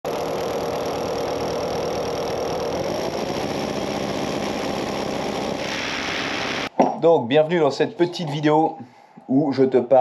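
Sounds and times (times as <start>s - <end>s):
rotary hammer drilling into wall: 0.1s - 6.7s.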